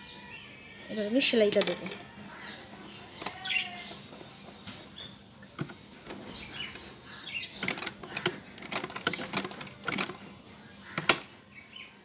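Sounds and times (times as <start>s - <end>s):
sewing machine stitching: 5.6s - 10.3s.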